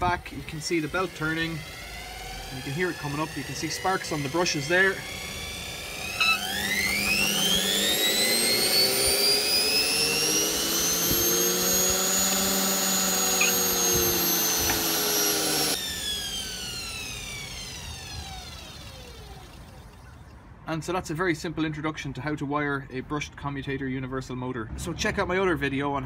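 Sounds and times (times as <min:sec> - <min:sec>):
electric motor whining: 0:00.0 - 0:20.2.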